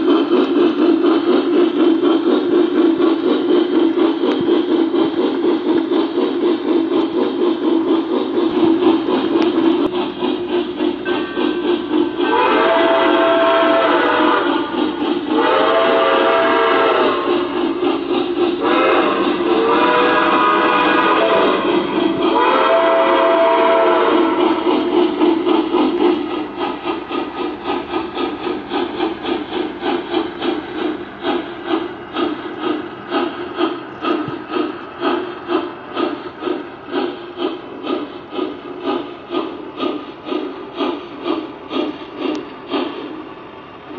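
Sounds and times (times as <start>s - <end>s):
rhythmic steam chuffing: 0.0s - 43.9s
steam whistle: 12.2s - 17.6s, 18.6s - 24.7s.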